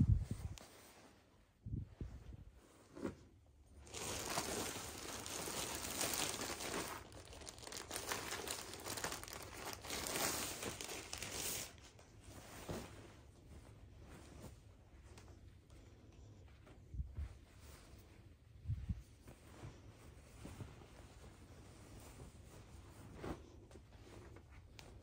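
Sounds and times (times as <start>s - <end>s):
plastic bags crinkling: 3.8s - 11.8s.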